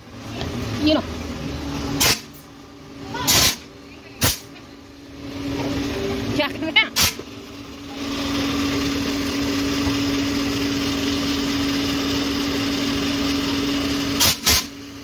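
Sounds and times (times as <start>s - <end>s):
electric blower motor humming: 5.0s - 15.0s.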